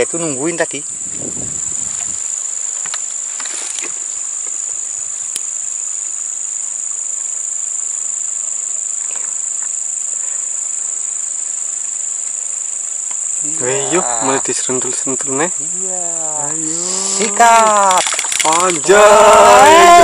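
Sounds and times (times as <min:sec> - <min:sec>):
high-pitched insect chorus: 0:00.0 - 0:20.0
faint ticks and rustles: 0:01.7 - 0:05.5, 0:08.5 - 0:13.4.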